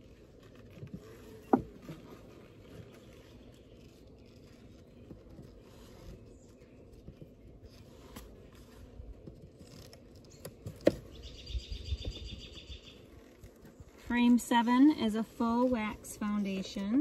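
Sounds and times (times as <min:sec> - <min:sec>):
bird chirping trill: 0:11.1 - 0:13.0.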